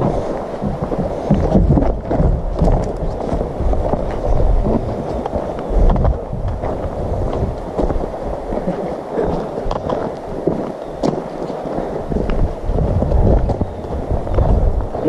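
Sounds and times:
footsteps crunching on gravel: 0.0 - 15.0
low rumbling wind: 0.0 - 15.0
microphone handling noise: 0.0 - 15.0.

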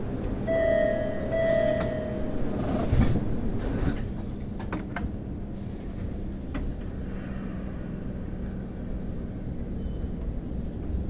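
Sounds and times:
subway car rumble: 0.0 - 11.0
steady high tone: 0.5 - 2.5.

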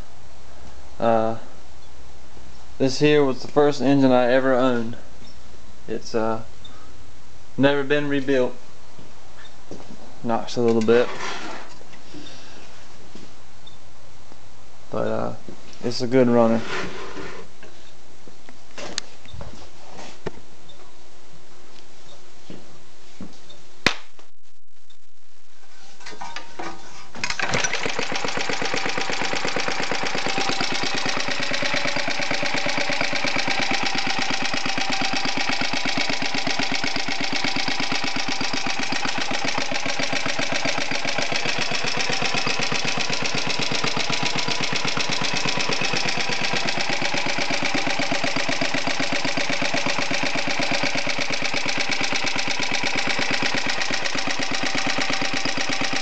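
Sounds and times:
small engine idling: 27.2 - 56.0.

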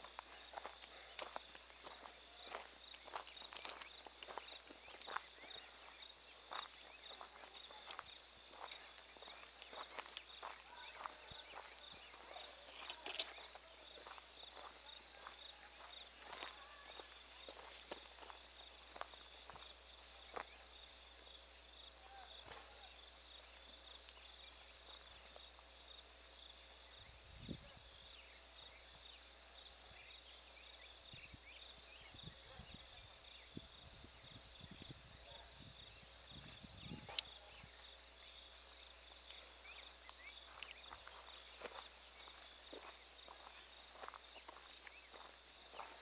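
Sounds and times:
footsteps on dirt track: 0.0 - 20.8, 22.2 - 25.6, 39.1 - 46.0
insects chirping: 0.0 - 46.0.

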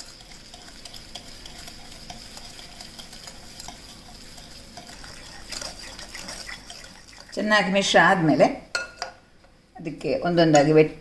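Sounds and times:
whisk scraping in glass bowl: 0.0 - 8.0.

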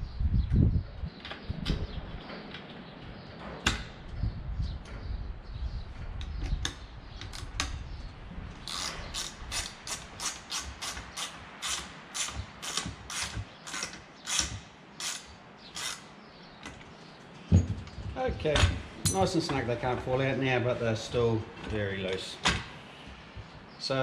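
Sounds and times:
ratchet wrench clicking: 8.7 - 16.0.

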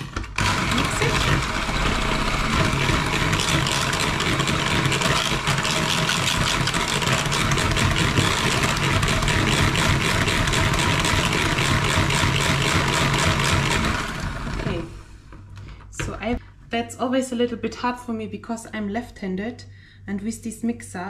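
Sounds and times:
electric hand mixer whirring: 0.0 - 15.0.

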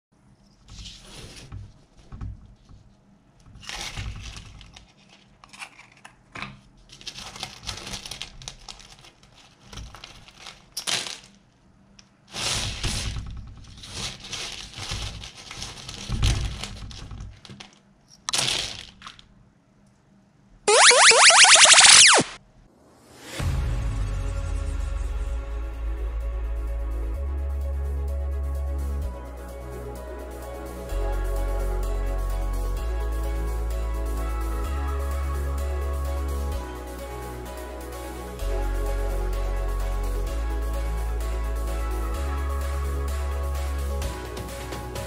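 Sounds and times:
swooshing sound effect: 20.7 - 22.4.

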